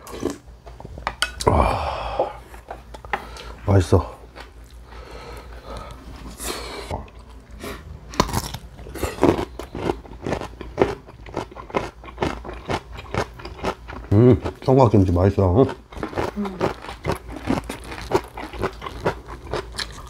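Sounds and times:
crunchy chewing: 7.1s - 14.8s, 15.6s - 20.0s.

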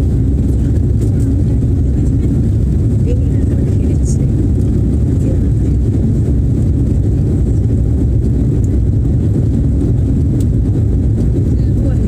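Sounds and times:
jet engine rumble in cabin: 0.0s - 12.0s.

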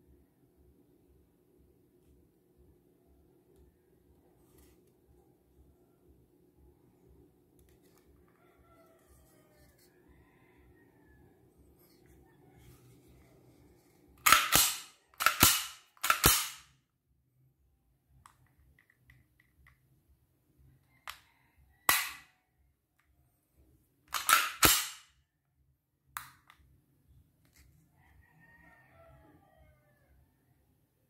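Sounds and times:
pistol action metallic clacks: 14.2s - 16.7s, 21.9s - 22.2s, 24.1s - 25.1s.

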